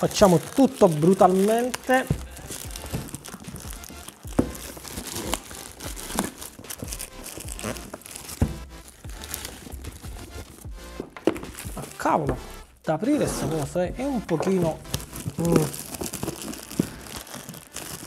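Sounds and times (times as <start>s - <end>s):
plastic mailer crinkling and tearing: 0.0s - 12.1s, 13.1s - 18.0s
cardboard box knocks: 4.3s - 4.7s, 8.3s - 8.7s.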